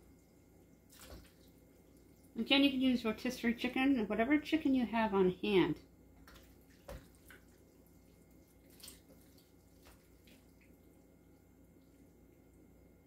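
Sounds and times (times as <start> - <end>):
ladle tapping and dripping: 6.2 - 10.8.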